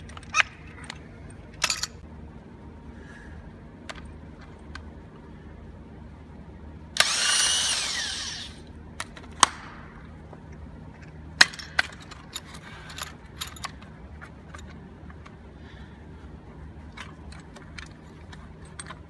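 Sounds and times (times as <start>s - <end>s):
power drill whining: 7.0s - 8.6s.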